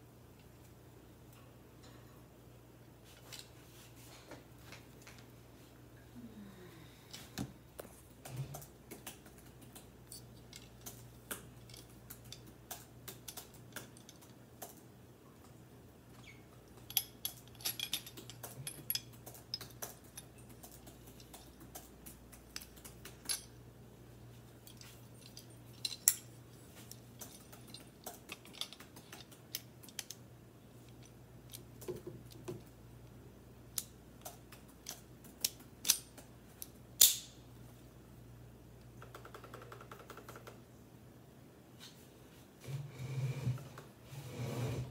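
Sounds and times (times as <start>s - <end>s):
faint low hum: 0.0s - 44.9s
rifle parts clicking and clinking: 10.0s - 14.8s, 16.6s - 23.6s, 24.4s - 32.7s, 33.8s - 37.4s.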